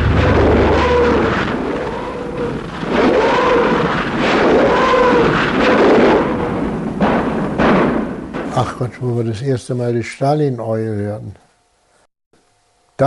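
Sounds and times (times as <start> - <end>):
rocket howls: 0.0 - 6.7
heavy rumbling: 0.0 - 8.6.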